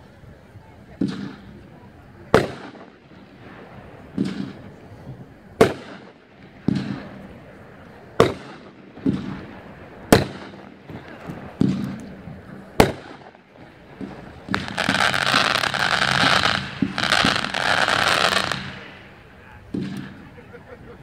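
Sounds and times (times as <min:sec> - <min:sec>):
dense firework crackle: 0:00.0 - 0:21.0
sharp firework bangs: 0:01.0 - 0:01.6, 0:02.3 - 0:04.8, 0:05.6 - 0:07.3, 0:08.1 - 0:20.3.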